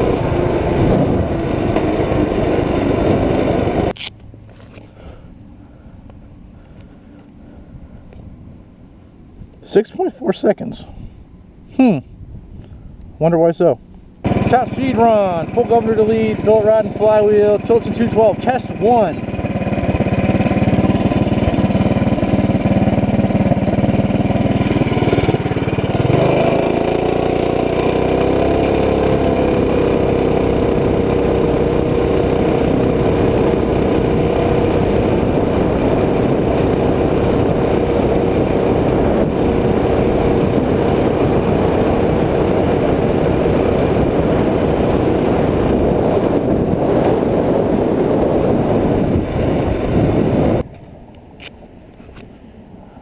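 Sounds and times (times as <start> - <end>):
small engine at full throttle: 0.0 - 4.0, 14.2 - 50.6
wind rushing over microphone: 0.0 - 4.0, 12.1 - 53.0.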